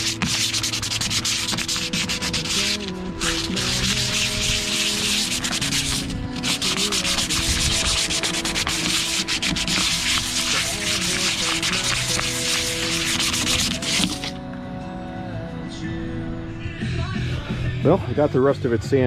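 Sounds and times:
sandpaper scratching on metal: 0.0s - 14.3s.

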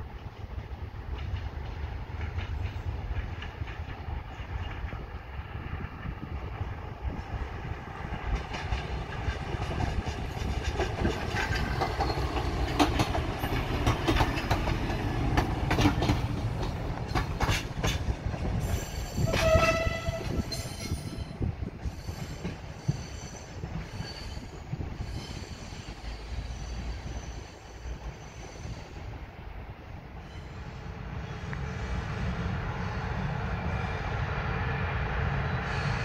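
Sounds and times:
train rumbling past: 0.0s - 36.0s
wheels clicking over track: 8.3s - 19.9s
train horn blast: 19.2s - 20.6s.

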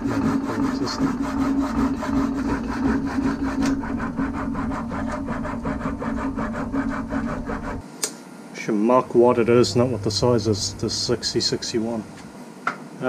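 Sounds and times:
bandsaw motor hum: 0.0s - 7.8s, 9.1s - 12.3s
saw blade rasping through metal: 0.0s - 7.8s.

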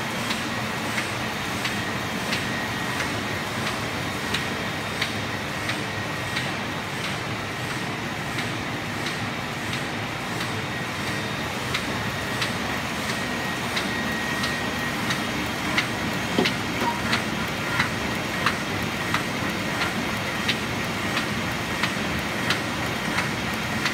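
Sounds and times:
printing press mechanical din: 0.2s - 23.9s
sharp mechanical clicks: 13.8s - 23.9s.

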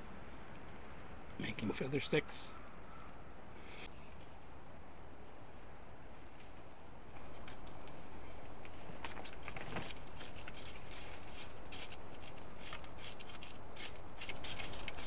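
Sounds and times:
knife scraping bark: 9.1s - 15.0s.

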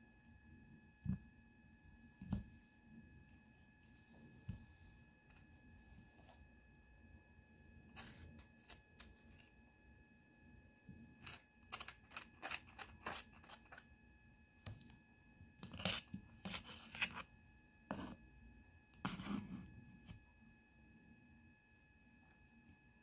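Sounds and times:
knife scraping avocado: 11.2s - 13.8s.

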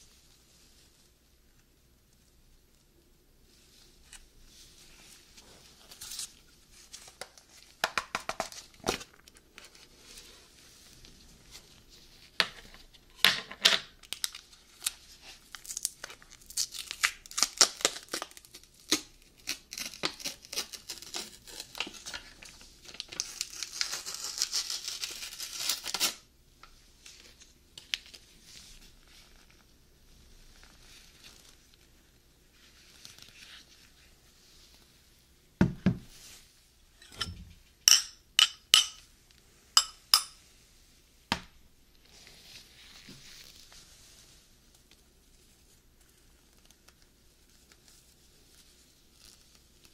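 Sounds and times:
peel-off seal crinkling and tearing: 14.0s - 28.2s
spoon clinking glass bowl: 37.0s - 39.0s, 39.8s - 40.4s.

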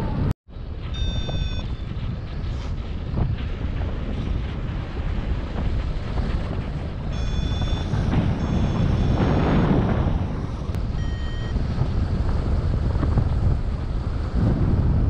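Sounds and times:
wind rushing over microphone: 0.0s - 15.0s
electronic variometer beeps: 0.9s - 1.9s, 7.1s - 11.6s.

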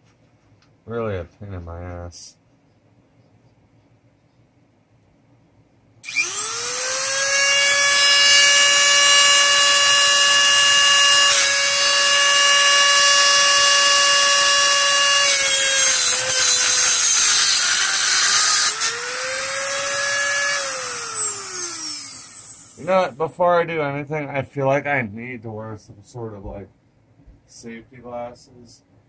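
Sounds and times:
rotary tool high whine: 6.0s - 22.9s.

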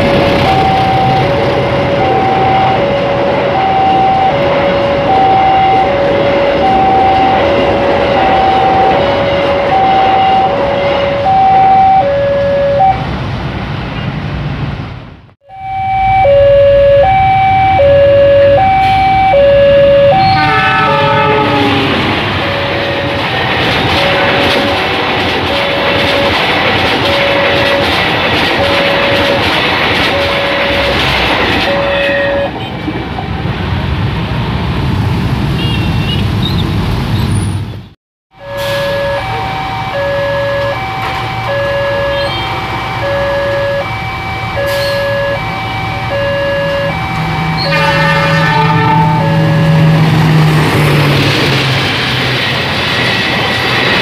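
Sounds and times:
train wheels rushing on rails: 0.0s - 11.8s, 20.4s - 37.7s, 43.8s - 54.0s
level crossing two-note alarm: 0.0s - 13.0s, 15.4s - 24.4s, 30.1s - 31.0s, 31.6s - 32.5s, 38.3s - 50.0s
train horn falling in pitch: 15.5s - 24.8s, 30.1s - 32.6s, 38.4s - 43.9s, 44.5s - 50.1s.

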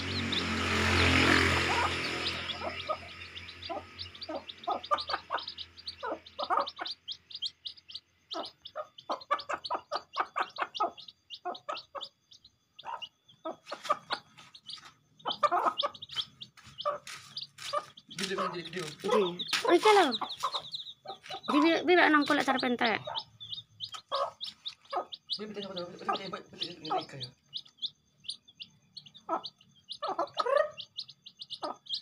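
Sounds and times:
chicks peeping: 0.0s - 32.0s
hen clucking: 0.0s - 32.0s.

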